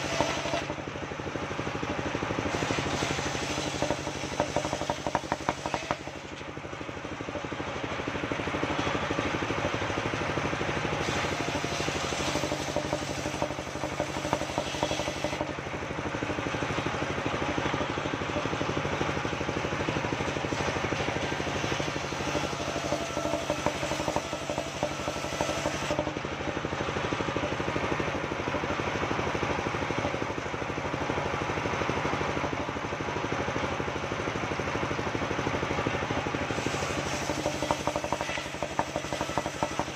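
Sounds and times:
circular saw cutting wood: 0.0s - 0.9s, 2.0s - 6.5s, 7.9s - 18.7s, 20.2s - 26.2s, 35.9s - 39.9s
saw engine droning: 0.0s - 39.9s.

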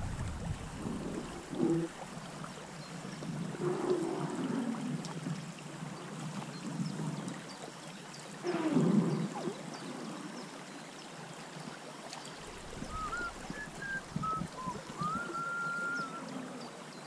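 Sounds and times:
water gurgling and lapping: 0.0s - 17.0s.

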